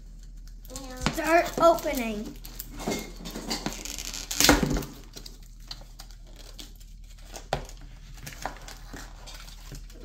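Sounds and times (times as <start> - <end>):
paper packaging tearing: 3.7 - 7.5
paper crinkling: 3.7 - 10.0.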